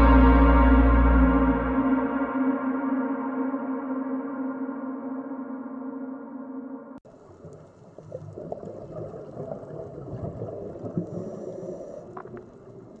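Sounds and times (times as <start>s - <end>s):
gong-like music tone: 0.0s - 7.0s
underwater gurgling and bubbling: 7.2s - 13.0s.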